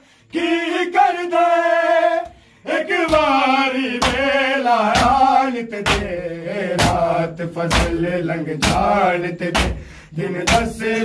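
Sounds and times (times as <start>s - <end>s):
men chanting a lament: 0.0s - 11.0s
open-hand slaps on bare chests: 3.1s - 3.4s, 4.0s - 10.8s.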